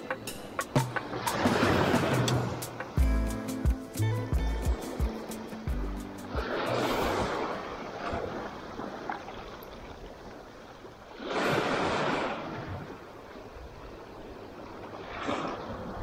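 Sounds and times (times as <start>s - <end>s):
small sea waves breaking: 0.1s - 3.0s, 6.2s - 16.0s.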